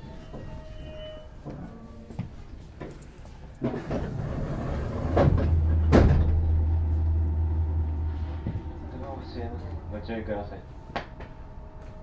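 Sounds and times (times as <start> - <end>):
sliding train door shutting: 3.6 - 9.9
steady low hum: 5.4 - 12.0.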